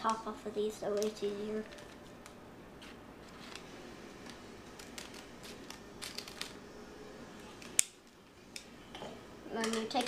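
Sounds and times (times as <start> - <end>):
paper crinkling: 0.0 - 6.6
scissors snipping paper: 0.8 - 6.6.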